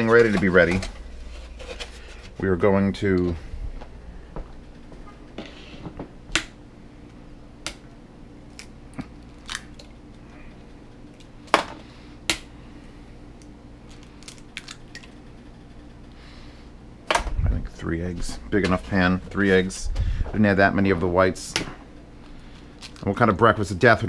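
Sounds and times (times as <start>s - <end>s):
eggs cracked on glass bowl: 9.4s - 9.9s.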